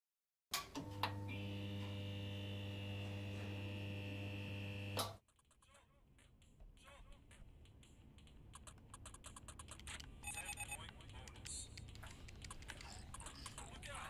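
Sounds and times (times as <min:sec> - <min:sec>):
low electrical buzzing hum: 0:00.8 - 0:05.0
high electrical whine: 0:01.2 - 0:05.1.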